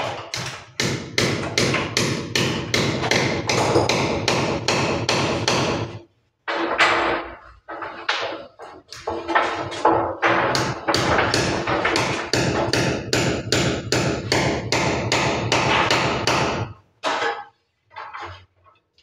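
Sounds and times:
hammer tapping small nails: 0.0s - 5.9s.

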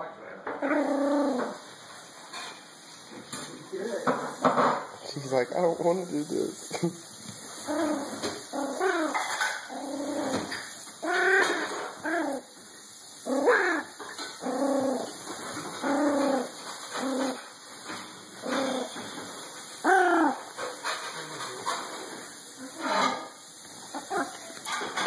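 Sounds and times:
tiny dog whining: 7.6s - 12.4s, 13.3s - 15.1s, 15.8s - 17.4s, 18.4s - 18.9s, 19.8s - 20.5s, 23.9s - 24.4s.

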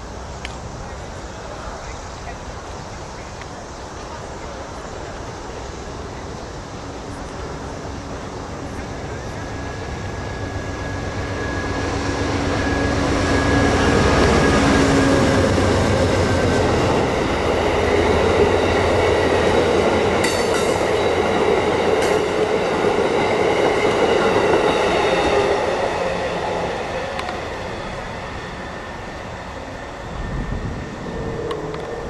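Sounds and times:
diesel locomotive engine: 0.0s - 32.0s
train wheels rumbling on rails: 0.0s - 32.0s
sharp clacks of train wheels: 9.3s - 27.9s.

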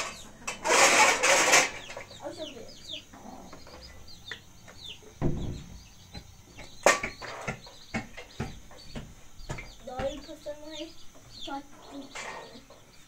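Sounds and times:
chickens clucking and peeping: 0.0s - 13.0s
sharp knock: 5.2s - 6.2s
dull thump: 5.2s - 6.3s.

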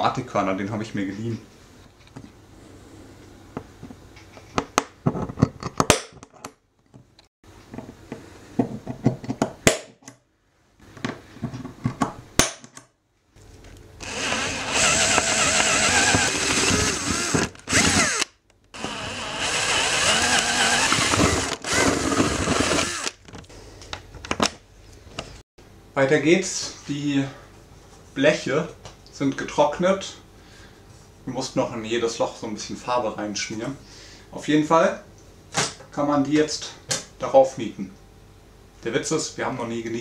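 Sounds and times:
power drill drilling aluminium: 14.0s - 23.2s.

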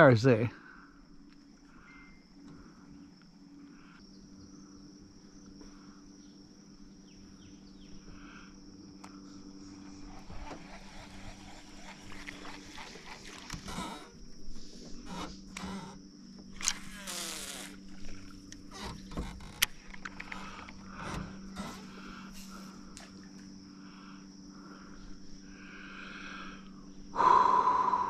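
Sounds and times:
high insect drone: 0.0s - 28.0s
low steady hum: 0.0s - 28.0s
clicks and rustles: 17.7s - 22.0s.

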